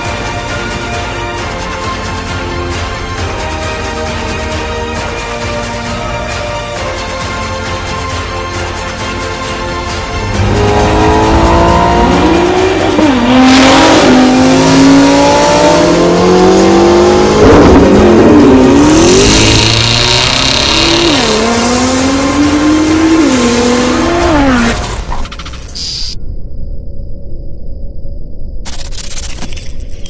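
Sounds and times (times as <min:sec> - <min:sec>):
background music: 0:00.0 - 0:25.3
car engines accelerating hard: 0:10.1 - 0:25.1.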